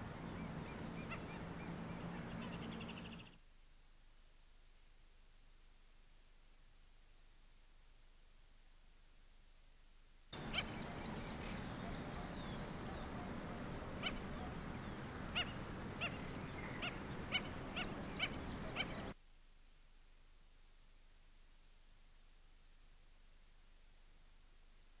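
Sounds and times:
wading birds calling: 0.0s - 3.3s, 10.4s - 19.2s
rushing outdoor ambience: 0.0s - 3.4s, 10.4s - 19.2s.

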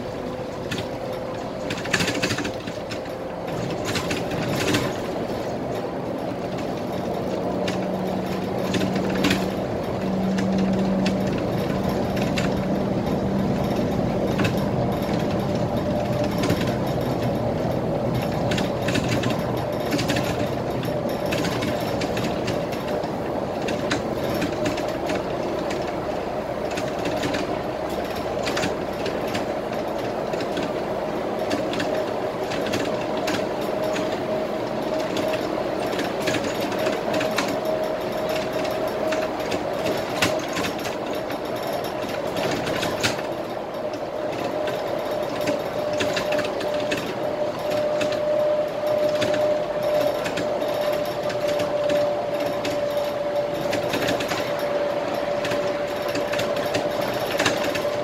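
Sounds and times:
bus cabin running noise: 0.0s - 58.0s
interior rattles and clicks: 0.0s - 58.0s
steady whine: 0.0s - 58.0s.

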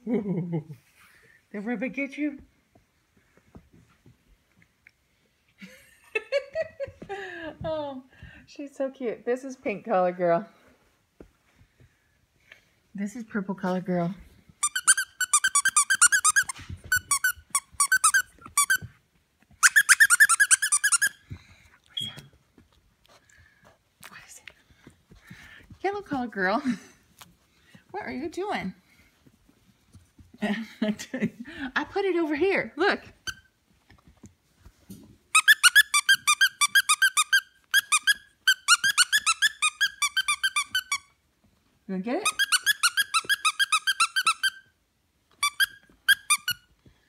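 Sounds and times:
squeaky dog toy squeaking: 14.6s - 18.9s, 19.6s - 21.2s, 33.1s - 33.5s, 35.3s - 41.2s, 42.2s - 46.7s.

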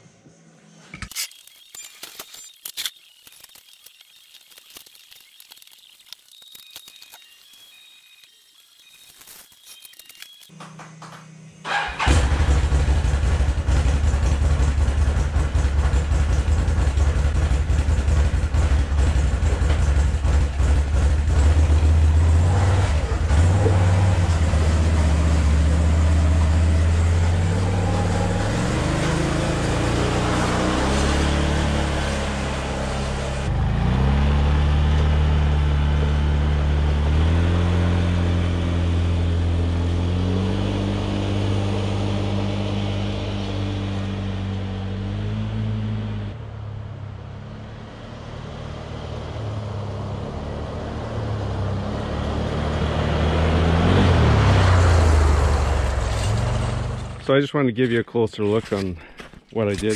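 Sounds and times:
atv engine revving: 11.7s - 57.2s.

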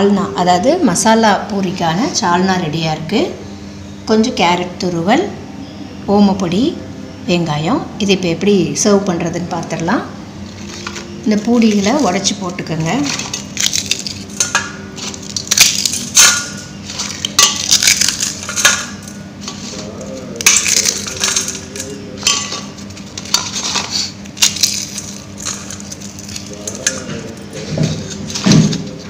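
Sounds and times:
pieces dropping onto steel plate: 13.0s - 19.2s, 20.4s - 23.8s
crisp fried bread crunching: 13.0s - 27.4s.

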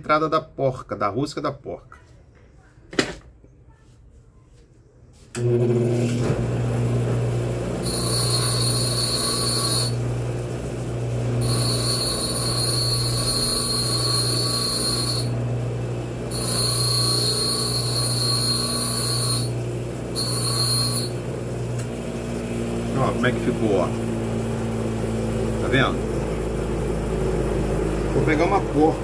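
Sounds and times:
electric motor humming: 5.7s - 22.2s
high-pitched metal grinding whine: 7.8s - 10.0s, 11.4s - 15.4s, 16.3s - 21.3s.

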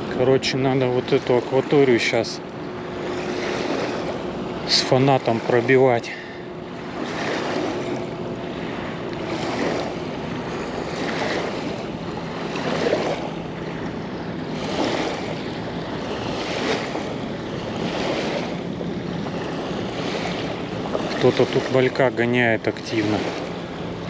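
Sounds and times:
waves lapping on sandy bank: 0.0s - 24.0s
wind on microphone: 6.5s - 21.7s.

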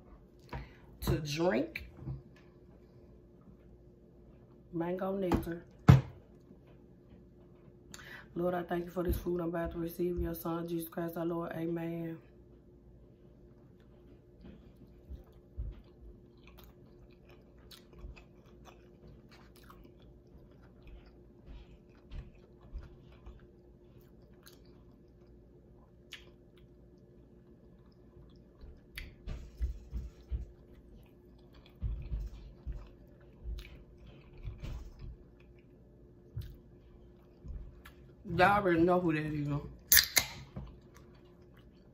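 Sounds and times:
biting and chewing: 13.7s - 38.1s, 39.9s - 41.9s.

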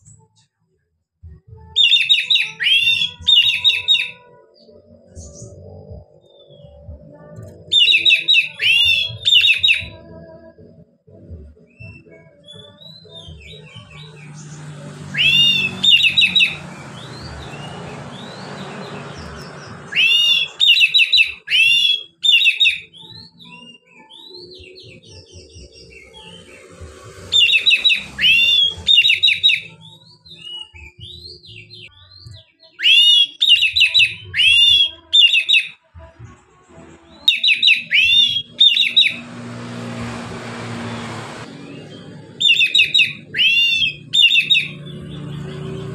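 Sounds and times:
bird singing whistled phrases: 1.8s - 4.4s, 7.6s - 10.0s, 15.1s - 26.5s, 27.3s - 35.8s, 37.3s - 39.3s, 41.6s - 44.8s.

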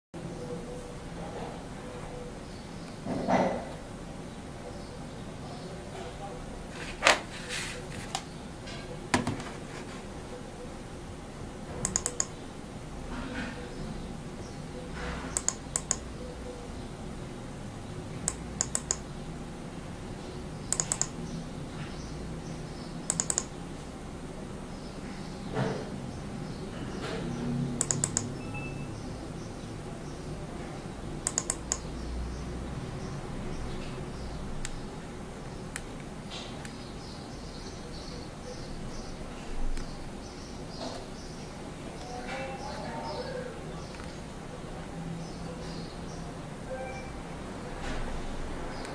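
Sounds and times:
buttons clicking: 11.8s - 12.4s, 15.3s - 16.1s, 18.2s - 19.1s, 20.7s - 21.2s, 23.1s - 23.5s, 27.8s - 28.7s, 31.2s - 31.9s.

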